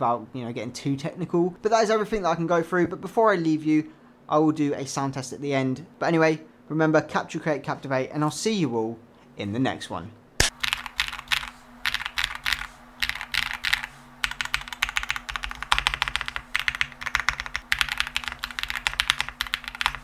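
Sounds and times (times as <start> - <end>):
mechanical keyboard typing: 10.5 - 20.0.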